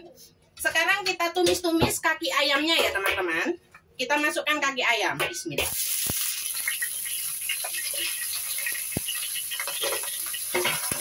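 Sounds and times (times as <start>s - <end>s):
food sizzling in hot oil: 5.6s - 11.0s
oil crackling and popping: 5.7s - 11.0s.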